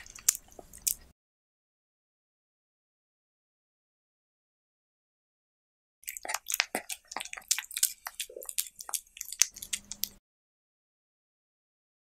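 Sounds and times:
cat chewing and licking food: 0:00.0 - 0:01.1, 0:06.0 - 0:10.2.

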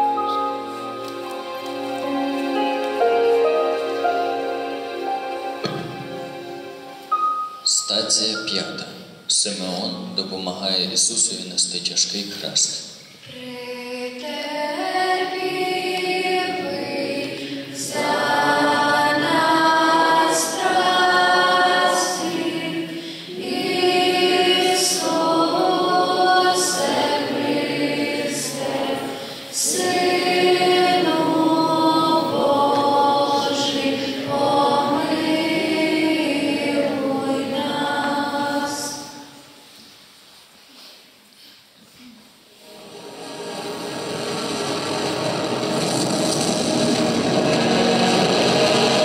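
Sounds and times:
choir singing held notes: 0:00.0 - 0:09.6, 0:13.2 - 0:39.8, 0:42.5 - 0:49.0.

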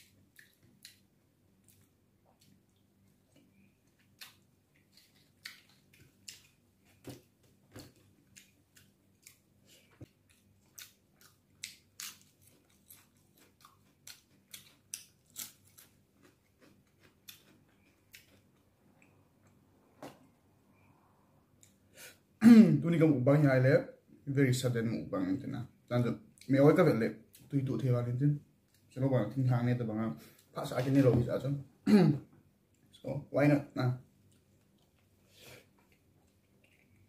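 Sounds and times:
man chewing with wet clicks: 0:00.0 - 0:20.4, 0:21.5 - 0:21.8, 0:34.2 - 0:37.0.

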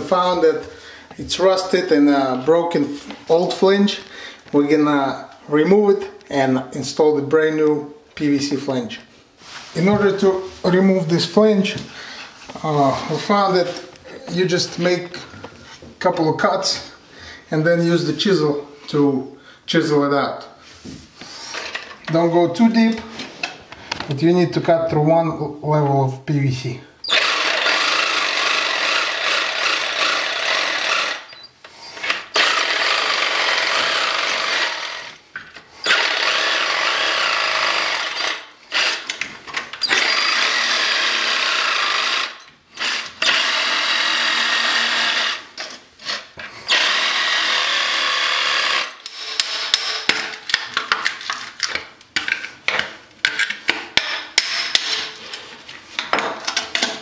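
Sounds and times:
oscillating multi-tool cutting plastic: 0:39.8 - 0:45.4.

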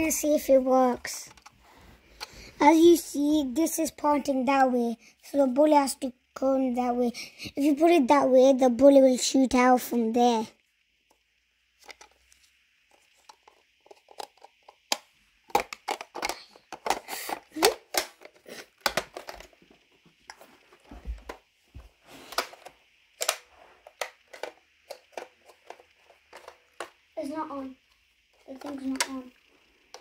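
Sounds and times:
faint steady hiss: 0:00.0 - 0:30.0
plastic toy blaster clicks and rattles: 0:11.8 - 0:12.2, 0:12.9 - 0:19.6, 0:22.3 - 0:27.0, 0:28.3 - 0:29.3.

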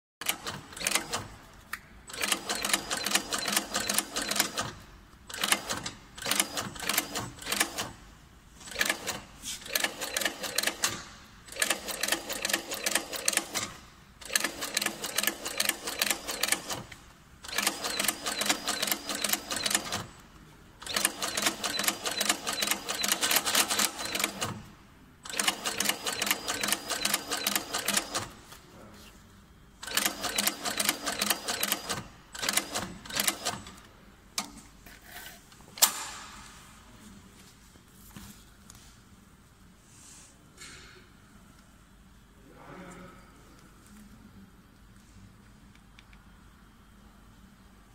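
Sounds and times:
sewing machine stitching: 0:00.2 - 0:01.3, 0:02.1 - 0:08.0, 0:08.6 - 0:20.2, 0:20.8 - 0:28.4, 0:29.8 - 0:33.8.

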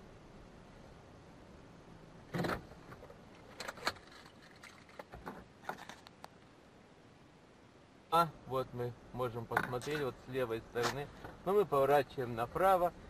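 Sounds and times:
small clicks and rattles: 0:02.4 - 0:06.3.

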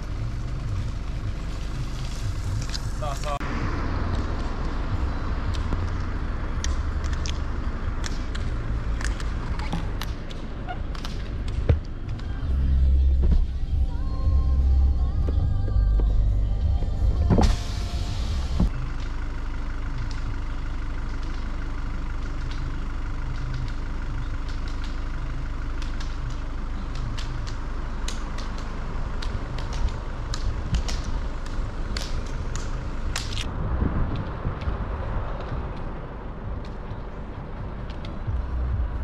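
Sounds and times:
car rumbling on gravel: 0:00.0 - 0:39.0
sharp ticks: 0:25.7 - 0:33.5.

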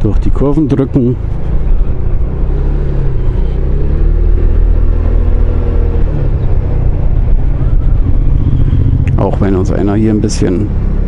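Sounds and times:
low rumble: 0:00.2 - 0:11.0
scooter engine accelerating: 0:01.2 - 0:11.0.

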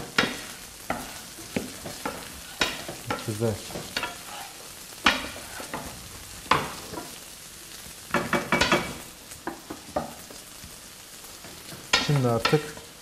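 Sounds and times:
wooden spoon scraping a pan: 0:00.0 - 0:07.2
rice sizzling in a pan: 0:00.0 - 0:13.0.

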